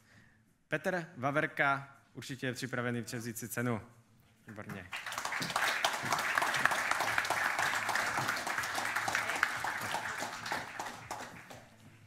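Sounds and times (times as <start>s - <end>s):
audience applause: 4.8s - 12.0s.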